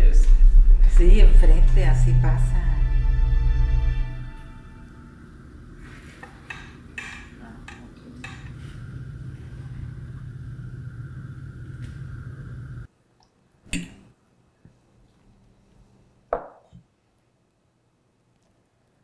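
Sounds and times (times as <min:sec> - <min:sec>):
low hum: 0:00.0 - 0:06.2, 0:08.3 - 0:12.9.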